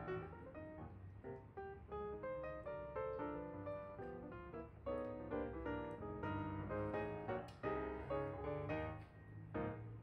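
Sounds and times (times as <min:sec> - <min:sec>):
piano music: 0:00.0 - 0:00.8, 0:01.9 - 0:09.0.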